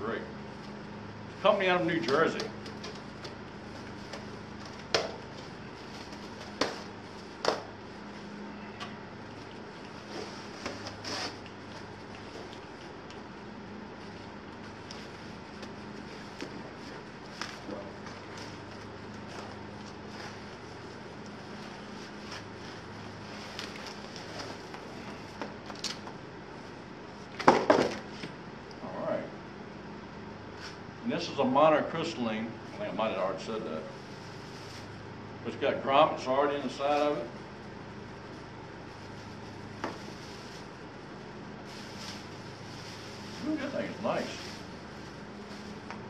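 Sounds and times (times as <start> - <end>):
steady low hum: 0.0 - 46.0
plastic crinkling: 41.6 - 46.0.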